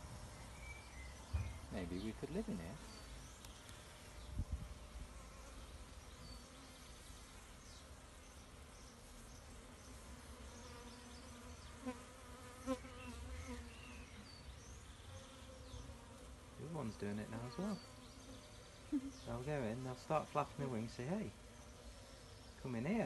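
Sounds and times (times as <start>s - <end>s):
honeybees buzzing: 0.0s - 23.0s.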